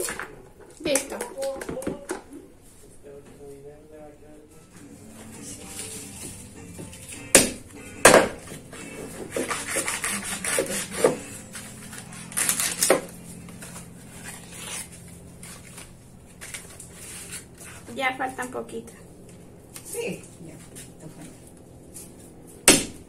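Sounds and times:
knife rasping through husks: 0:08.5 - 0:15.8.

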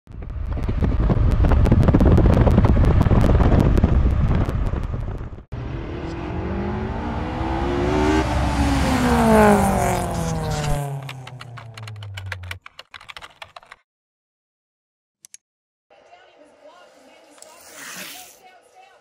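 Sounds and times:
car driving fast with rushing air: 0:00.1 - 0:12.5
car accelerating past: 0:05.6 - 0:12.4.

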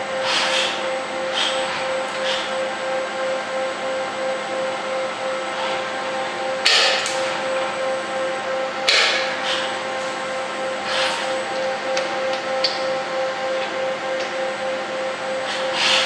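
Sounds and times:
steady machine hum: 0:00.0 - 0:16.0
wire cutter snapping: 0:06.6 - 0:07.3.

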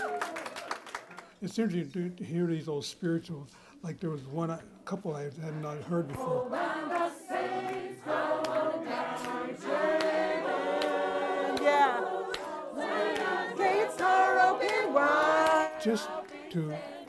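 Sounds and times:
choir singing unaccompanied: 0:05.4 - 0:17.0.

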